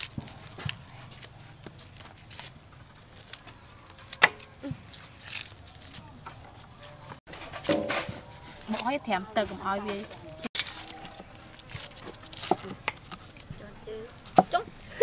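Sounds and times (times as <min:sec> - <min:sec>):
razor blade scraping shallot skins: 0:00.0 - 0:06.0, 0:10.5 - 0:13.5.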